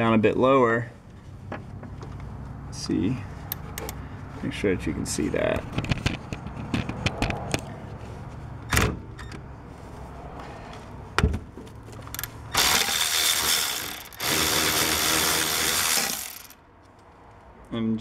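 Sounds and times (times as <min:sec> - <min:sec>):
power tool spinning bolt: 0:12.1 - 0:16.6.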